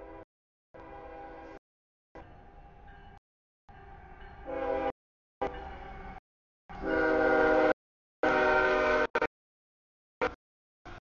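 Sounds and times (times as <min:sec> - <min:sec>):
locomotive air horn blasts: 0:00.0 - 0:00.2, 0:00.8 - 0:01.6, 0:04.4 - 0:05.8, 0:06.7 - 0:09.3.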